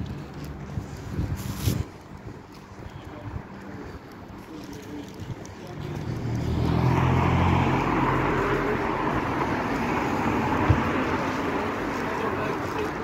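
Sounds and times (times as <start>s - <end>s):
vehicle passing by: 5.6s - 13.0s.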